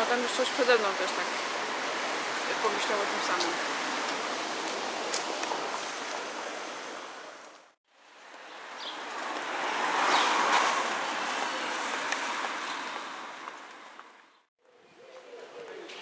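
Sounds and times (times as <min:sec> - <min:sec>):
rushing outdoor noise: 0:00.0 - 0:16.0.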